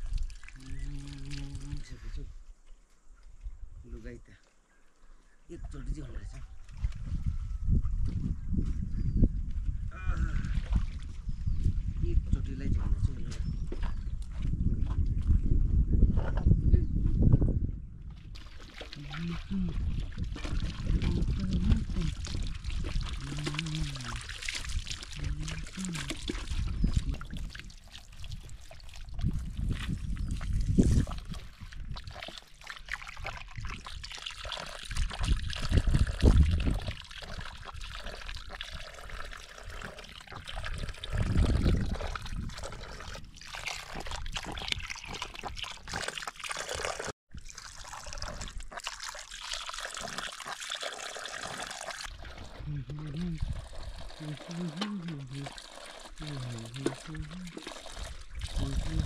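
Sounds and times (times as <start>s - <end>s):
water trickling and splashing: 0.0s - 2.3s, 3.2s - 15.4s, 18.0s - 59.0s
hands washing in bucket: 18.1s - 59.0s.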